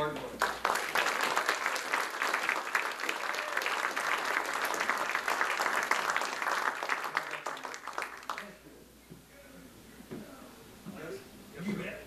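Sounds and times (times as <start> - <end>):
audience applauding: 0.4 - 8.5.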